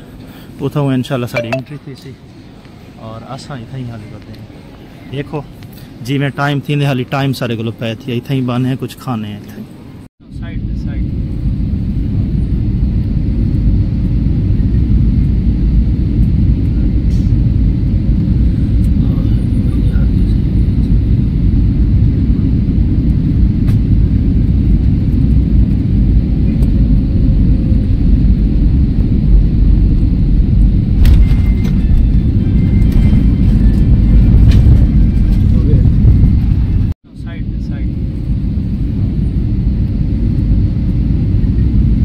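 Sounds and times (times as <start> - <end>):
airliner cabin rumble: 10.2 - 42.0.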